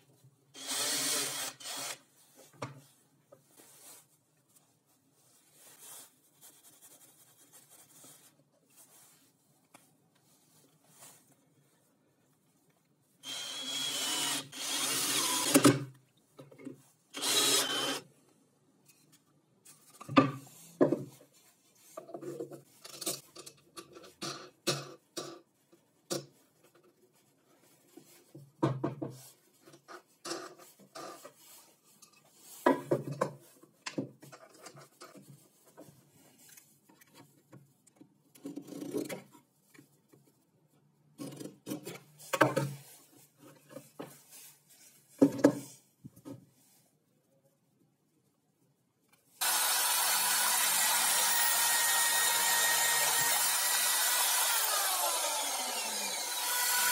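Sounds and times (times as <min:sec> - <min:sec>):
cordless drill driving screw: 0:00.6 - 0:02.0, 0:13.2 - 0:15.7, 0:17.2 - 0:18.0, 0:49.4 - 0:56.9.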